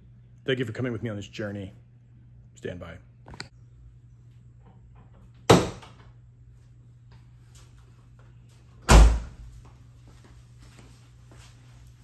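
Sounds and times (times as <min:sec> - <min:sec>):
heavy door slams: 0:08.8 - 0:09.4.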